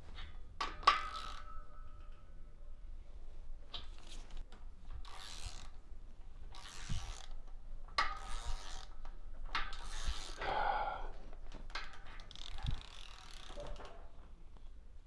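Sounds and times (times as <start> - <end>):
hand ratchet clicking: 0.6 - 2.2, 4.0 - 5.8, 6.5 - 10.5, 11.7 - 13.9.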